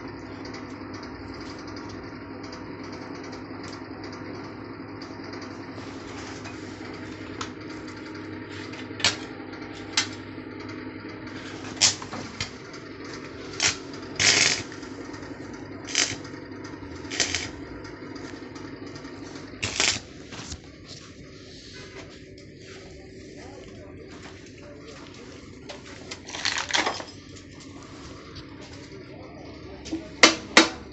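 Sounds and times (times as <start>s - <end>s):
steady low hum: 0.0s - 30.9s
cutting torch hissing blasts: 13.4s - 14.8s, 15.9s - 16.2s, 17.0s - 17.5s, 19.6s - 20.3s.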